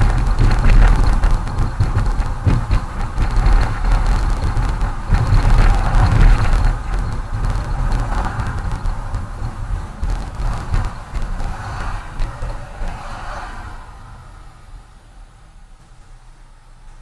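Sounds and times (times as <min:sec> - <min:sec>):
car engine low rumble: 0:00.0 - 0:17.0
tyre hiss: 0:03.2 - 0:15.1.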